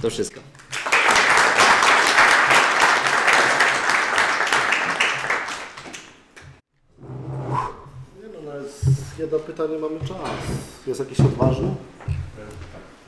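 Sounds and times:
audience applauding: 0.5 - 6.5.

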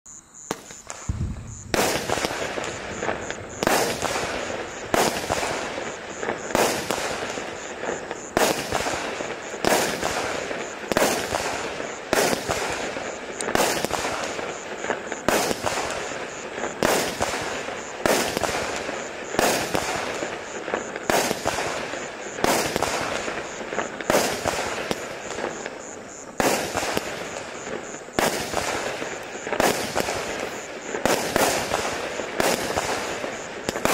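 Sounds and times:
firework bangs: 0.4 - 33.9
firework bursting crackle: 0.4 - 33.9.

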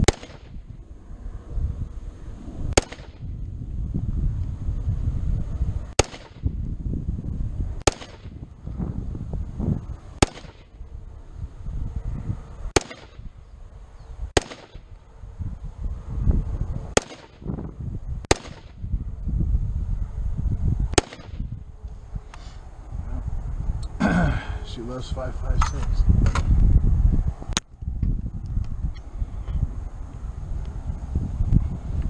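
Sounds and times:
rifle shots: 0.0 - 0.6, 2.7 - 3.3, 5.9 - 6.5, 7.8 - 8.4, 10.2 - 10.7, 12.7 - 13.3, 14.4 - 14.9, 16.9 - 17.5, 18.3 - 18.8, 21.0 - 21.5
wind rumble on microphone: 0.0 - 32.0.

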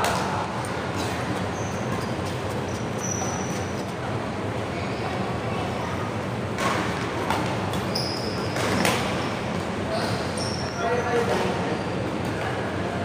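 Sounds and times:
court shoes squeaking: 0.0 - 4.2, 6.6 - 12.7.

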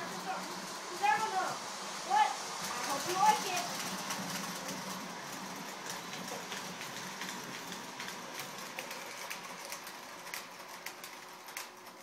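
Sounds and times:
toy train rattling on track: 0.0 - 12.0
wheel clicks: 2.6 - 12.0.

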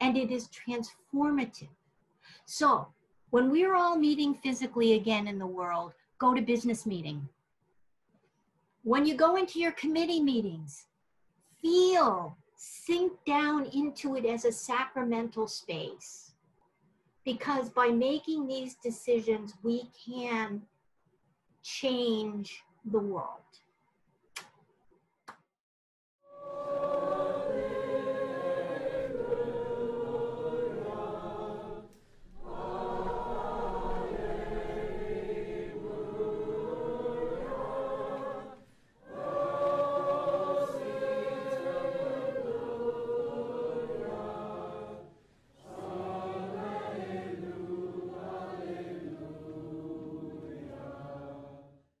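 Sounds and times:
choir singing sustained notes: 26.3 - 51.9.

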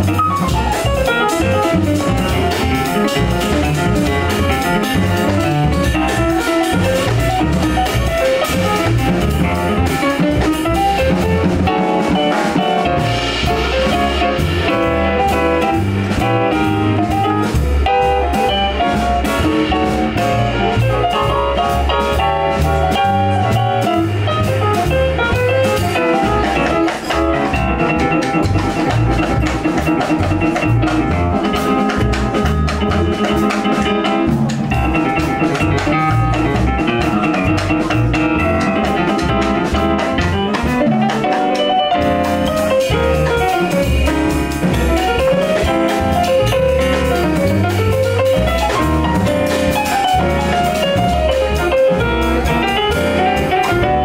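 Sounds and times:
drum kit with cymbals: 0.0 - 54.0
jazz piano: 0.0 - 54.0
walking bass line: 0.0 - 54.0.

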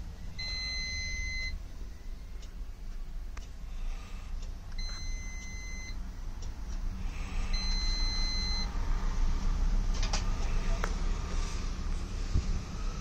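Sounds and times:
steady low hum: 0.0 - 13.0
multimeter continuity beep: 0.3 - 1.6, 4.7 - 6.0, 7.5 - 8.7.

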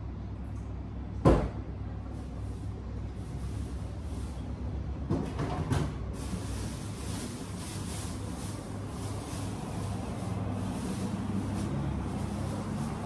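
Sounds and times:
refrigerator low hum: 0.0 - 13.0
knocks and rattles in refrigerator: 1.2 - 1.6, 5.0 - 6.0.

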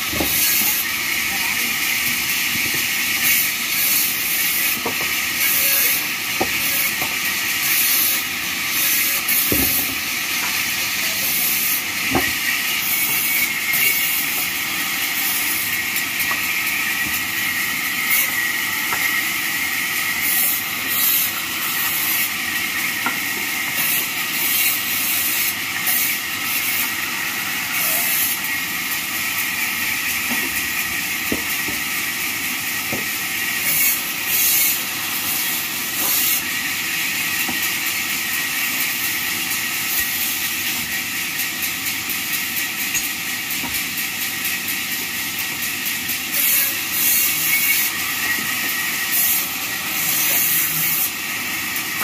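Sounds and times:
bandsaw hissing through wood: 10.7 - 23.1.

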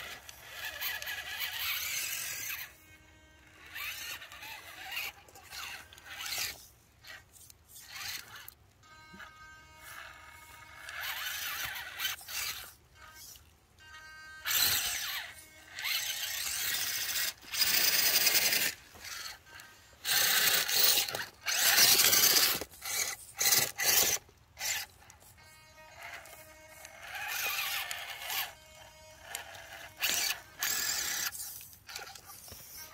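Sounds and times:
toy car motor and gears whining: 0.0 - 32.9.

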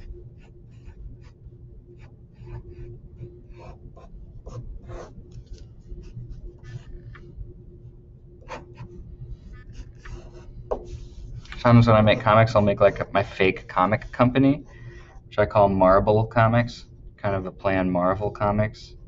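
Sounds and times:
pencil scratching on paper: 0.0 - 7.3, 8.4 - 14.4.

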